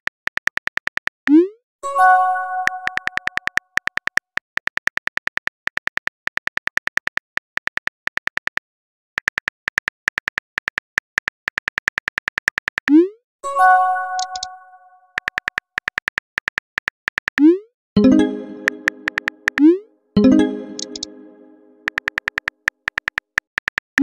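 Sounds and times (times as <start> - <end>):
multi-tone chime: 1.8 - 3.1, 13.4 - 15.0, 18.0 - 21.8
phone keyboard typing clicks: 2.6 - 8.6, 9.2 - 13.0, 14.2 - 14.5, 15.2 - 24.0.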